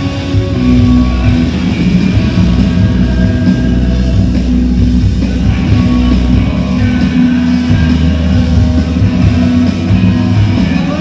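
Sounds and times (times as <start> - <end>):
live rock band through pa: 0.0 - 11.0.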